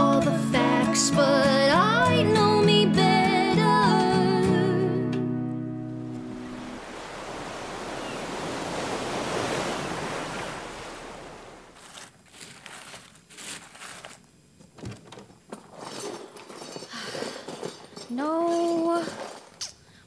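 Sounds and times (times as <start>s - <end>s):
ocean wave washing out: 6.0s - 11.8s
small knocks and rustles: 11.8s - 19.8s.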